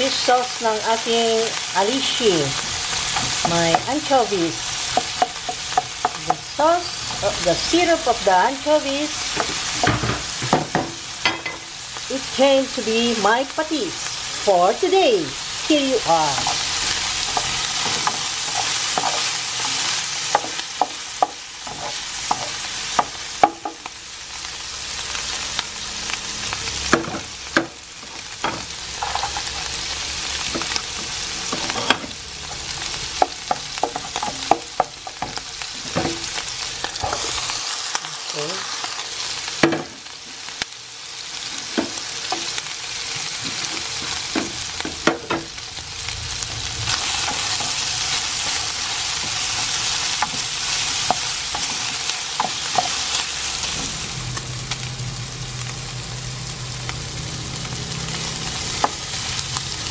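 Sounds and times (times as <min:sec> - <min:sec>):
pork sizzling in a pan: 0:00.0 - 0:59.9
wooden spatula scraping a pan: 0:16.2 - 0:22.6.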